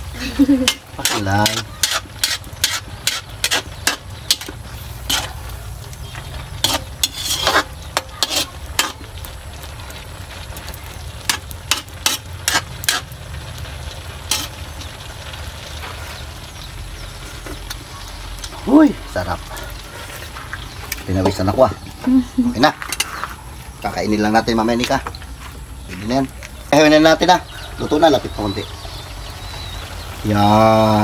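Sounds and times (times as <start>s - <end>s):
steady sizzle: 0.0s - 31.0s
metal spatula scraping a wok: 0.6s - 9.4s, 11.2s - 13.2s, 14.0s - 15.0s, 19.7s - 21.1s, 22.8s - 23.4s.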